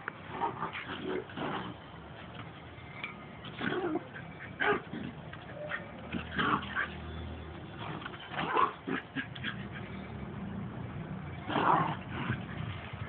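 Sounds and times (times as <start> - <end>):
small dogs fighting: 0.3 - 1.8, 3.4 - 7.0, 7.8 - 10.0, 11.4 - 12.8.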